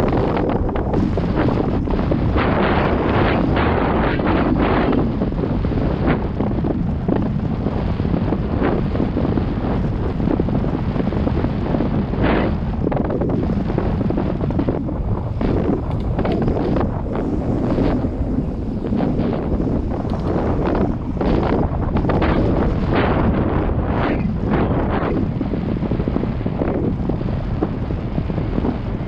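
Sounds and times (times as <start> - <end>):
bike tyre noise: 0.0 - 29.0
wind on microphone: 0.0 - 29.0
bike rattling over rough ground: 12.3 - 23.5.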